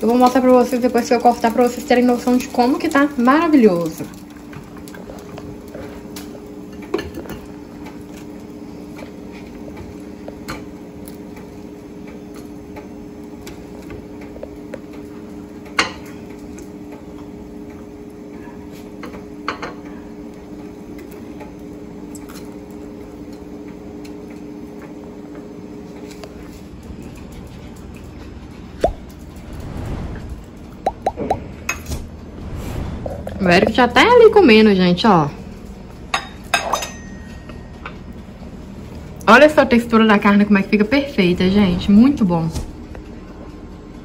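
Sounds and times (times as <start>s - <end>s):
steady electric hum: 0.0s - 44.0s
metal utensils clinking on grill: 36.2s - 37.5s.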